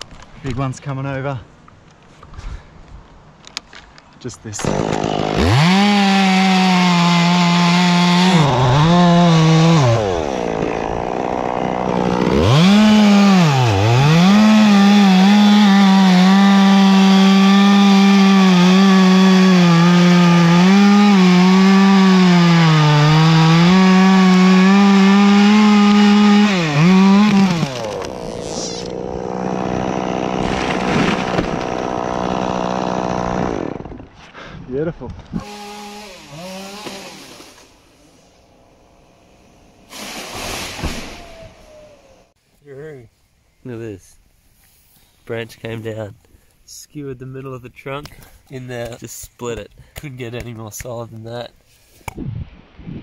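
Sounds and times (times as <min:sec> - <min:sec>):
background noise: 0:00.0 - 0:05.0, 0:37.0 - 0:53.0
chainsaw cutting wood: 0:04.6 - 0:34.1, 0:35.3 - 0:42.4.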